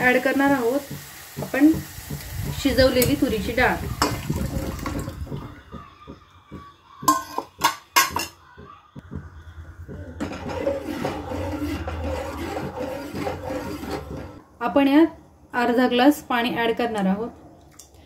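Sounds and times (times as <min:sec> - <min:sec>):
ladle stirring in pot: 0:00.0 - 0:05.6, 0:09.8 - 0:14.4
steel cookware clanking: 0:07.1 - 0:08.4, 0:10.2 - 0:14.4.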